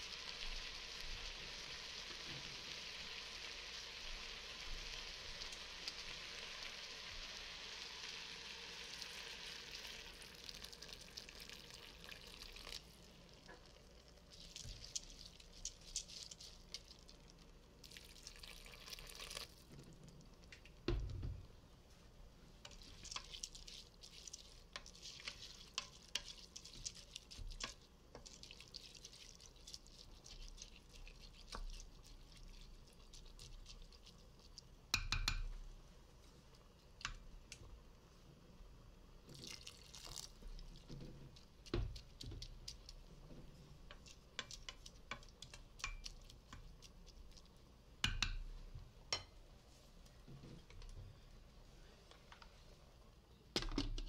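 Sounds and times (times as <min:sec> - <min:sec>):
spoon knocking pot: 0:34.9 - 0:35.6, 0:48.0 - 0:48.5.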